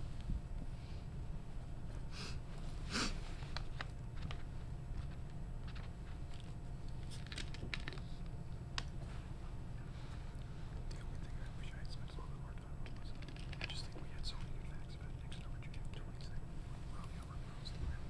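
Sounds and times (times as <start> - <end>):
steady low hum: 0.0 - 18.0
paper rustling: 3.3 - 8.2.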